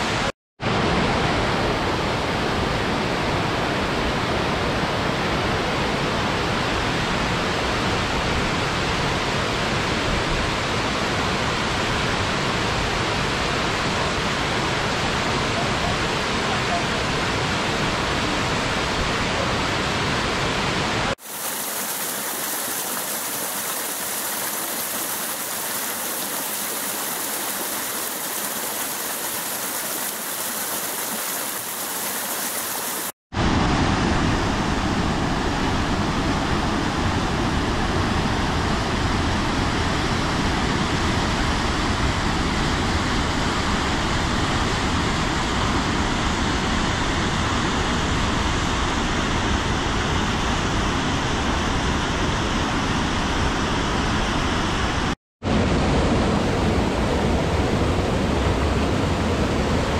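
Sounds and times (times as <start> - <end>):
water rushing over rocks: 20.6 - 33.2.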